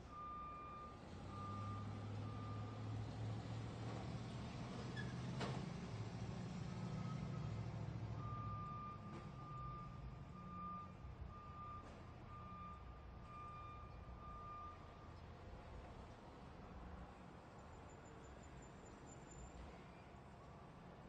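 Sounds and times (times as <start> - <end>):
truck reversing alarm beeping: 0.0 - 3.3, 6.8 - 15.2.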